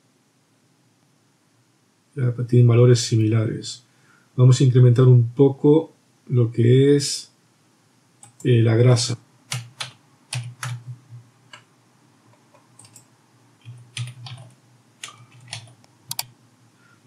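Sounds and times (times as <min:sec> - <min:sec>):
keyboard keystrokes: 0:09.5 - 0:11.7, 0:12.3 - 0:16.3.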